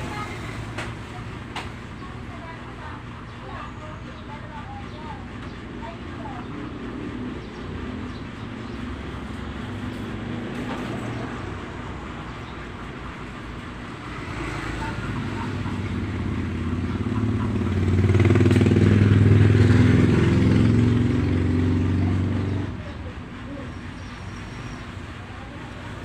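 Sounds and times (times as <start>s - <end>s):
motorcycle engine running: 13.5s - 26.0s.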